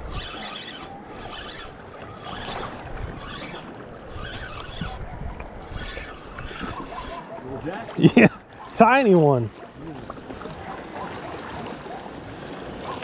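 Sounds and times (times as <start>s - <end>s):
wind on microphone: 0.0s - 0.4s, 1.2s - 7.6s
fishing reel cranking: 0.0s - 5.1s, 5.7s - 7.3s
small waves lapping: 0.0s - 13.0s.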